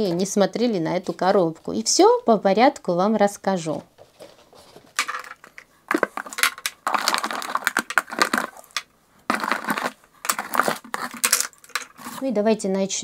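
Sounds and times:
cosmetic products clinking: 5.0s - 12.2s.

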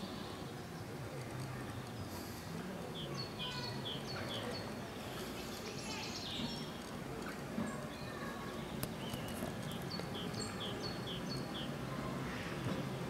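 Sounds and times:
bird chirping: 8.0s - 11.8s.

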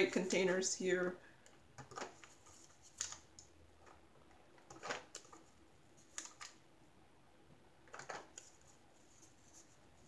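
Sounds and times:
plastic containers clicking: 1.8s - 2.3s.

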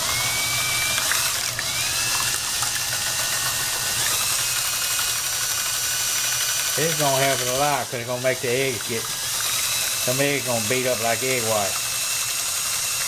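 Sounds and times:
drill motor whirring: 0.0s - 13.0s
small clicks: 0.8s - 4.3s.

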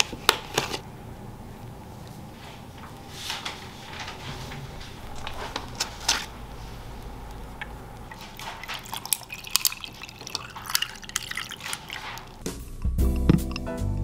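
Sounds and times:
low steady hum: 0.0s - 14.0s
coffee pouring over ice: 8.1s - 12.5s.

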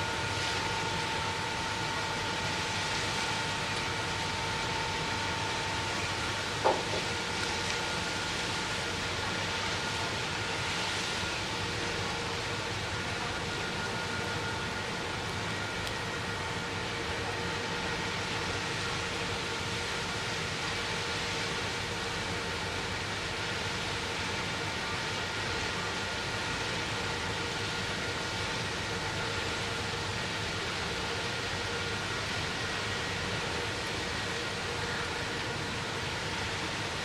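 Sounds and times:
faint engine drone: 0.0s - 23.4s.

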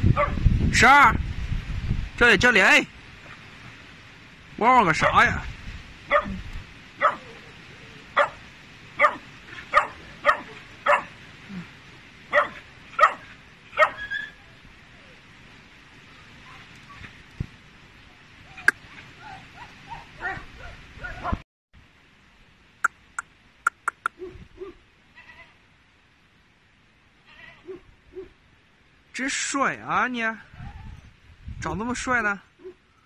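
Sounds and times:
puppy barking in high yaps: 0.2s - 0.4s, 6.1s - 6.4s, 7.0s - 7.4s, 8.2s - 8.4s, 9.0s - 11.1s, 12.3s - 14.4s, 18.6s - 21.4s, 23.8s - 24.8s, 27.6s - 28.4s
soft faint puppy calls: 23.7s - 24.8s.

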